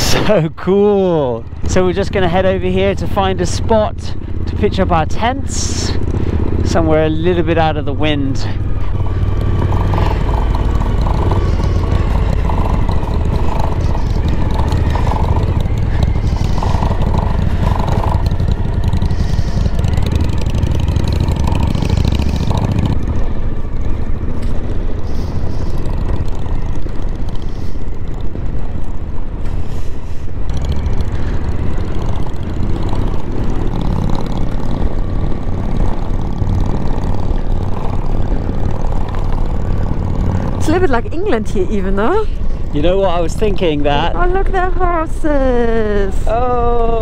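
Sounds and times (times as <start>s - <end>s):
motorcycle engine running: 0.0s - 47.0s.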